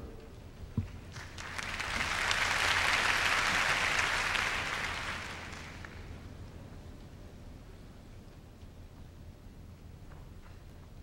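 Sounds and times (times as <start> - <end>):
audience applauding: 1.1 - 6.1.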